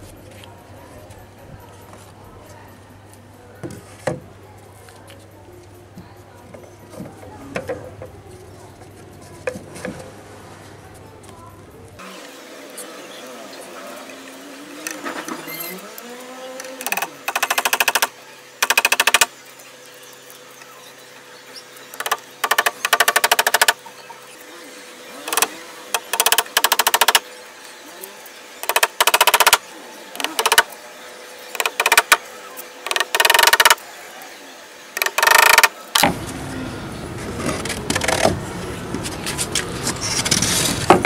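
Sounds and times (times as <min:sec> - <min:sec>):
hammer tapping nails into wood: 0:22.0 - 0:23.8.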